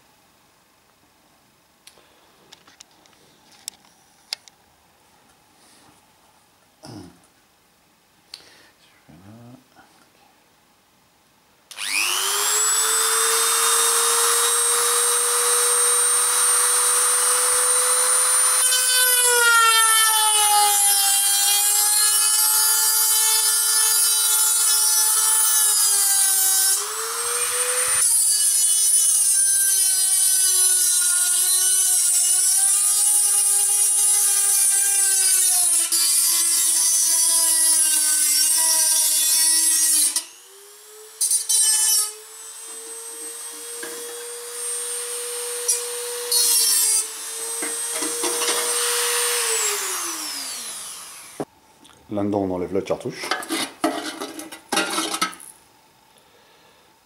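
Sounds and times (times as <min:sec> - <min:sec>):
rotary tool cutting metal: 0:11.7 - 0:51.5.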